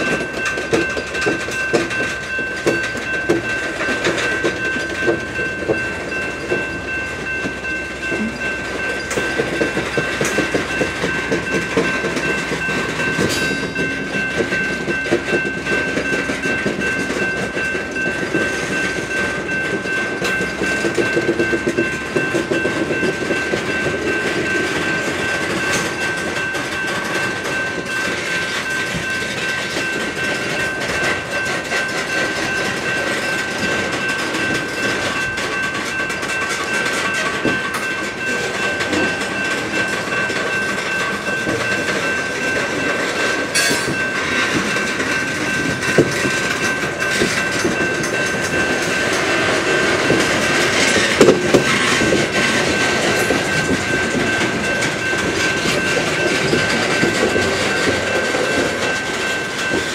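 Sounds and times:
crossing bell ringing: 0.0s - 59.9s
train wheels clicking on rails: 0.0s - 59.9s.

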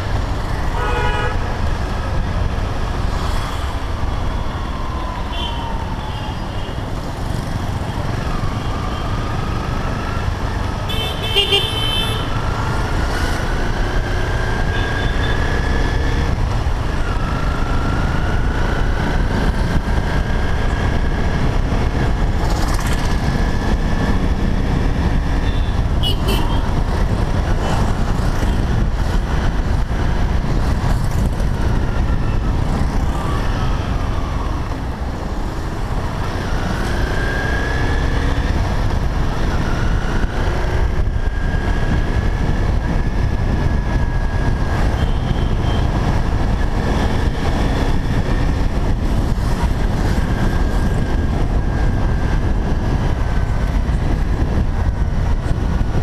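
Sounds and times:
motorcycle engine and road noise: 0.0s - 56.0s
wind on microphone: 12.3s - 56.0s.

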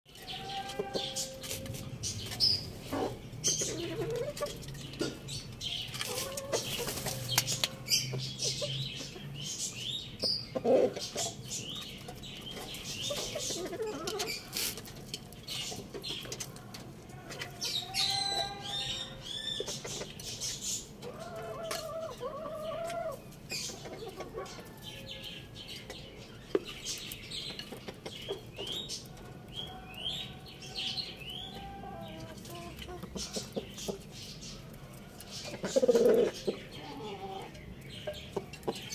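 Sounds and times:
pecking and scratching in straw: 0.1s - 4.8s, 5.9s - 8.6s, 12.0s - 18.8s
chickens clucking: 0.1s - 38.9s.

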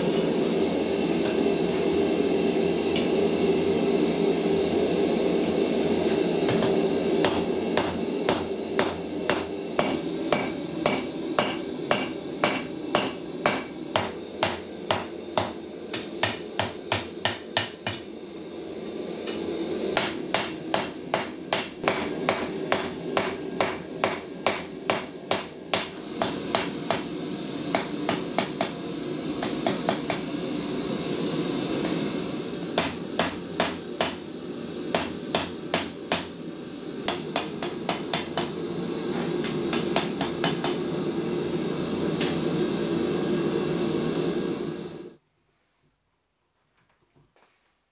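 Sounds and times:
forge burner rushing: 0.0s - 45.2s
hammer striking steel on anvil: 6.5s - 18.1s, 20.0s - 27.1s, 27.7s - 28.8s, 29.4s - 30.3s, 32.8s - 34.2s, 34.9s - 36.3s, 37.1s - 38.6s, 39.4s - 40.8s.

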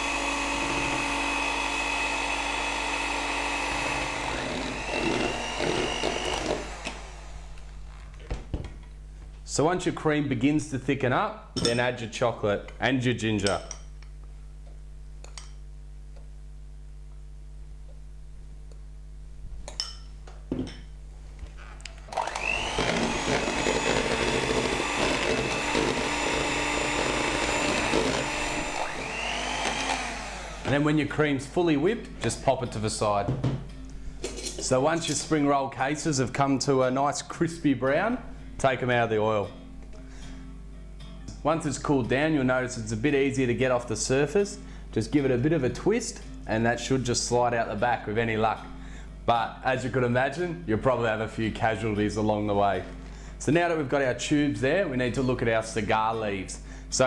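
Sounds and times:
electric hand mixer running: 0.0s - 7.8s, 22.1s - 30.8s.

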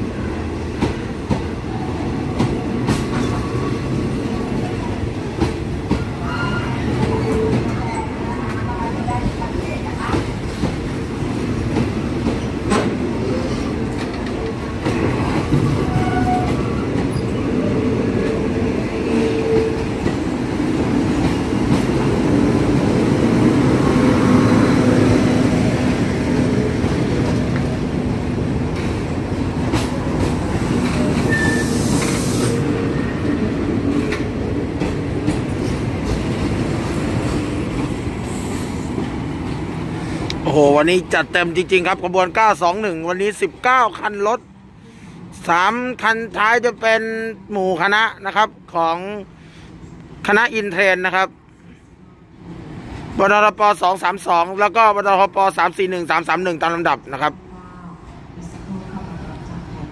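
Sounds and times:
wheel squeal: 31.3s - 32.2s.

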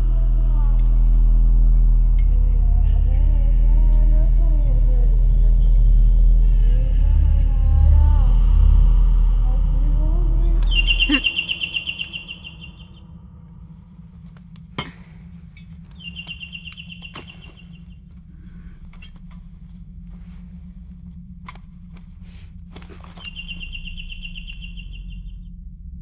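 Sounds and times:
steady low hum: 0.0s - 26.0s
high rapid chirping trill: 10.7s - 13.0s.

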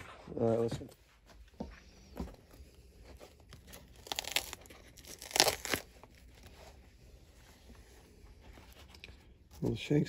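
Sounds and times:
dry crackling tearing of sole debris: 3.5s - 6.5s.

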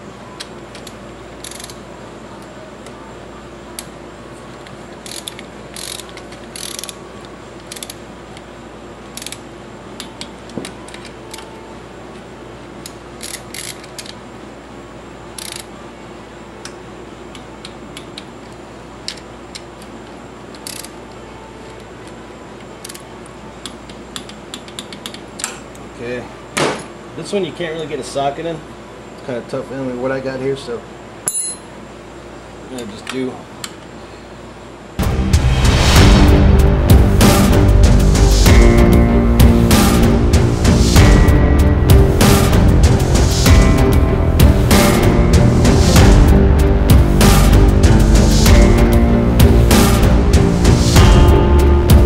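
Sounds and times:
ratchet wrench clicking: 0.8s - 1.8s, 5.0s - 7.0s, 9.1s - 9.4s, 13.2s - 14.2s, 15.4s - 15.7s, 20.6s - 20.9s.

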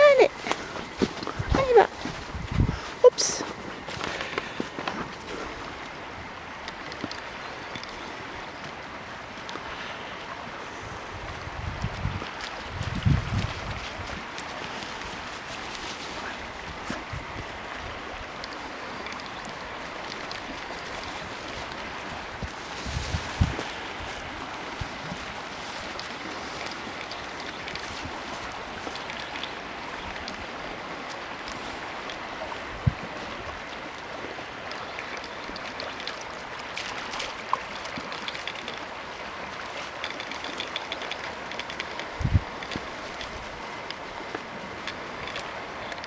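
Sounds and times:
river flowing: 0.0s - 46.0s
dogs splashing in shallows: 18.4s - 45.6s
faint ticks: 39.8s - 46.0s.

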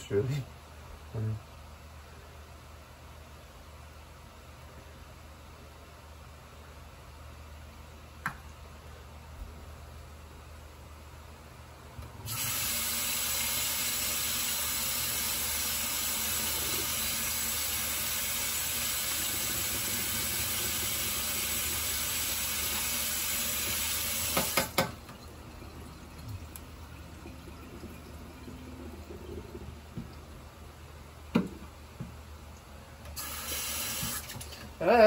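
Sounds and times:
kitchen tap running: 12.2s - 30.4s, 33.0s - 34.7s.

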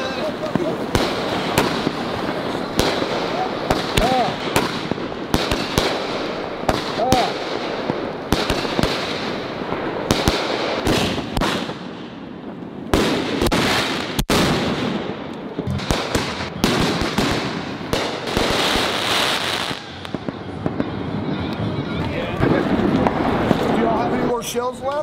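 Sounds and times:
continuous fireworks hiss: 0.0s - 25.0s
fireworks bangs and pops: 0.0s - 25.0s.

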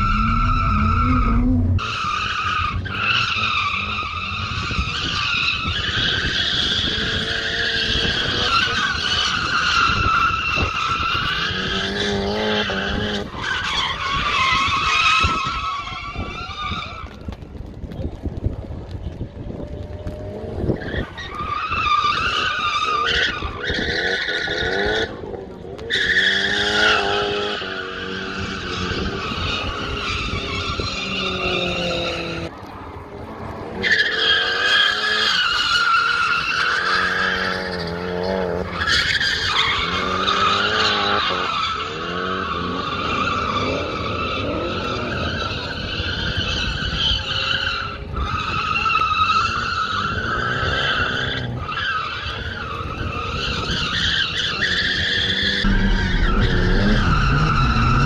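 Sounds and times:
car engine revving: 0.0s - 4.7s, 55.1s - 58.0s
tyres screeching: 0.0s - 17.1s, 33.8s - 58.0s.

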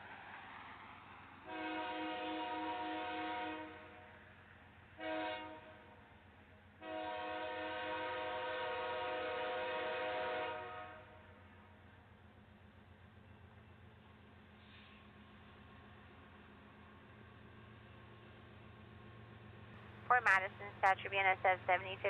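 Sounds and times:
train rumble: 0.0s - 22.0s
locomotive air horn blasts: 1.4s - 3.9s, 5.0s - 5.8s, 6.8s - 11.2s.

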